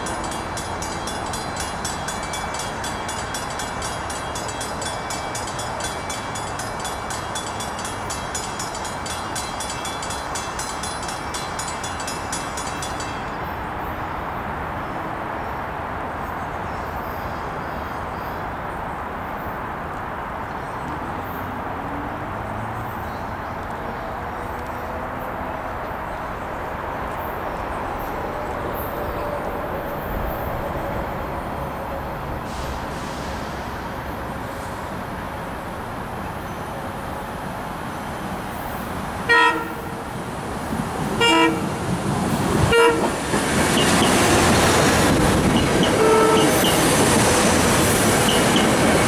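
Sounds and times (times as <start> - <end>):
crossing bell ringing: 0.0 - 14.3, 42.6 - 49.0
electric train running: 39.0 - 49.0.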